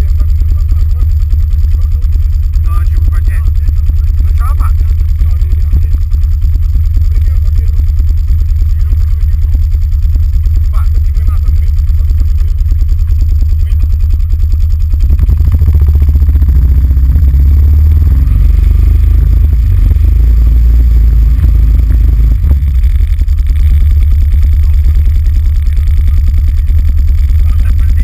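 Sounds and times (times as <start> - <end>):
atv engine idling: 0.0 - 28.0.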